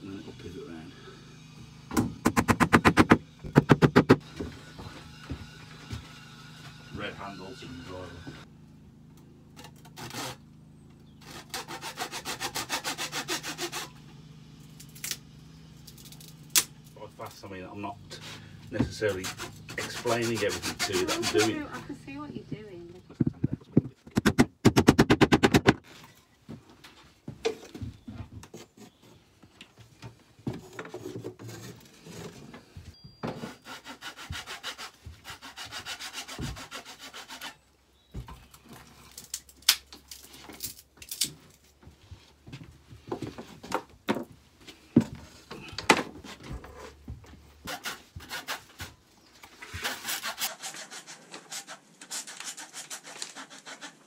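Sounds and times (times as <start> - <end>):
handsaw cutting wood: 2.2 - 8.4, 9.8 - 10.5, 11.2 - 14.1, 17.8 - 22.3, 33.4 - 37.7, 47.6 - 54.0.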